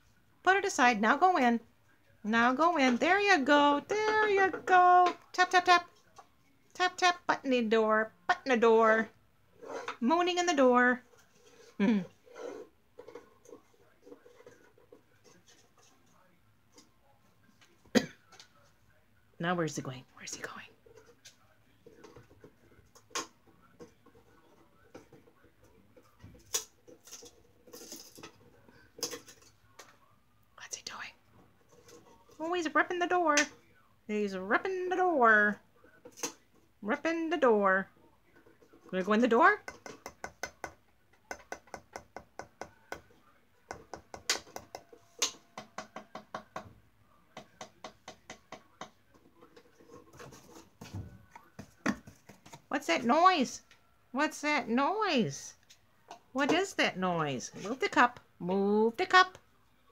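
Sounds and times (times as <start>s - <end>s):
parrot tapping on wooden box: 39.6s - 43.1s, 43.7s - 46.8s, 47.4s - 49.0s.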